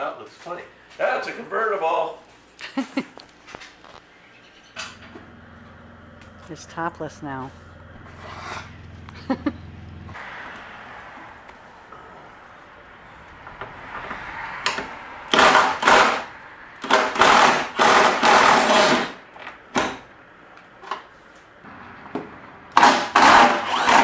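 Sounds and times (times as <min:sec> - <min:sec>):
cordless drill running in bursts: 0:16.8 - 0:19.2, 0:22.8 - 0:24.0.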